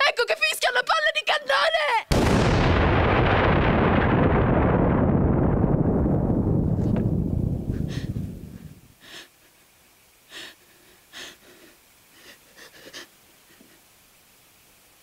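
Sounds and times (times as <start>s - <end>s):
woman gasping for breath: 7.7s - 9.4s, 10.3s - 13.8s.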